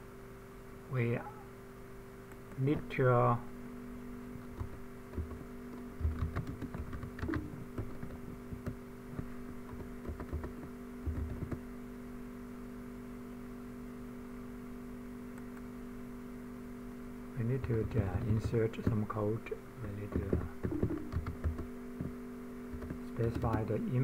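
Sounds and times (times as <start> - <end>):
steady electrical hum: 0.0 - 24.0
computer keyboard clicks: 4.5 - 11.6, 20.0 - 21.7, 22.7 - 23.7.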